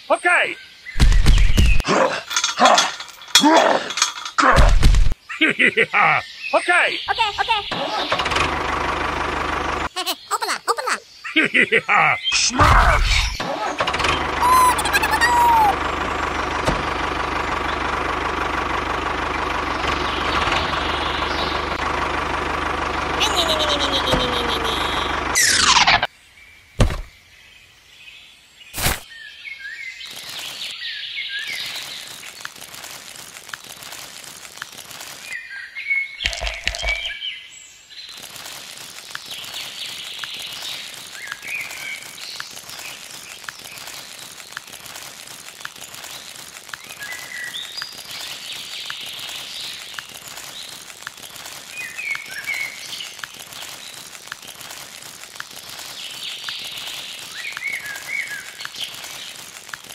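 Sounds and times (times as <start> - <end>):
small birds chirping: 0.0 - 4.3, 5.1 - 8.1, 9.8 - 13.5, 14.1 - 15.8, 19.3 - 21.8, 23.2 - 59.9
steady outdoor hiss: 1.9 - 13.8.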